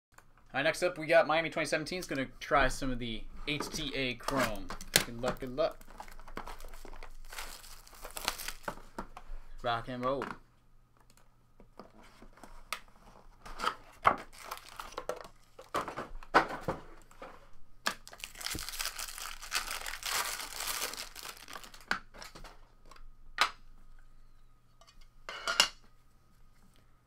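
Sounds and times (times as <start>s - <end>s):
wrapper tearing and crinkling: 4.2s - 8.8s, 14.2s - 15.1s, 17.9s - 22.4s.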